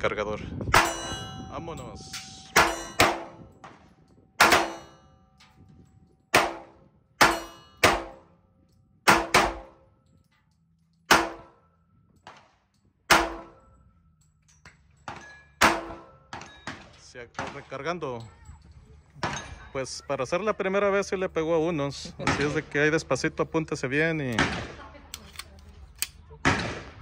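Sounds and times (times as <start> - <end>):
pistol shots: 2.6 - 5.0, 6.3 - 8.3, 9.1 - 9.8, 11.1 - 11.6, 13.1 - 13.6, 15.1 - 17.7, 24.3 - 24.9.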